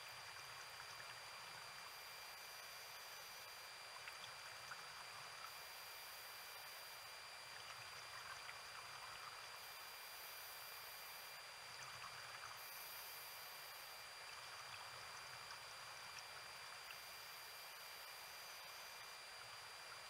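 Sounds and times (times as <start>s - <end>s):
faint steady hiss: 0.0s - 20.0s
thin steady high tones: 16.4s - 19.9s.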